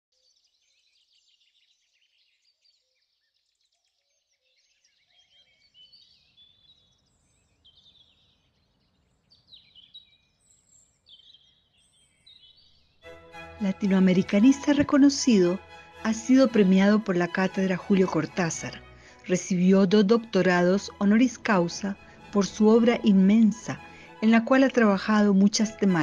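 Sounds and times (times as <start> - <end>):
birds chirping and trilling: 3.9 - 13.0.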